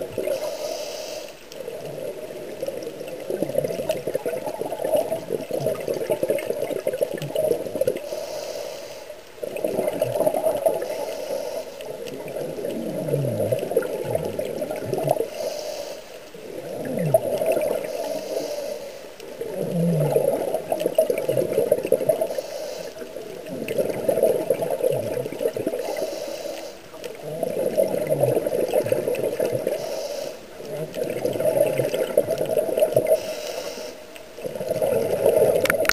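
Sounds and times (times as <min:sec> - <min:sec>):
exhaled bubbles gurgling: 0:00.0 - 0:35.9
regulator inhalation hiss: 0:00.3 - 0:01.4, 0:08.0 - 0:09.2, 0:10.8 - 0:11.9, 0:15.3 - 0:16.2, 0:17.8 - 0:19.1, 0:22.2 - 0:23.0, 0:25.8 - 0:26.9, 0:29.6 - 0:30.4, 0:33.2 - 0:34.1.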